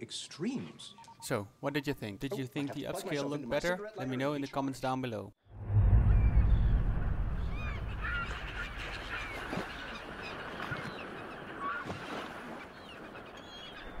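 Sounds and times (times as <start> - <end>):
birds calling and chirping: 6.3 - 14.0.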